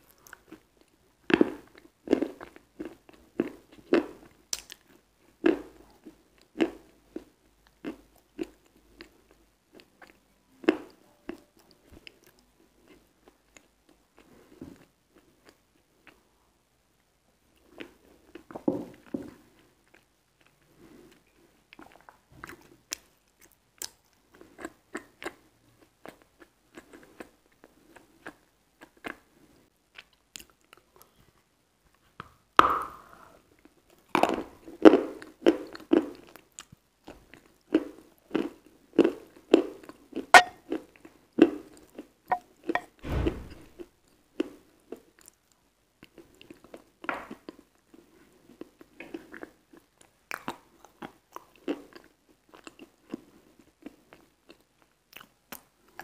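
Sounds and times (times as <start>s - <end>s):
wet chewing: 38.3s - 42.9s
low thump: 43.0s - 43.8s.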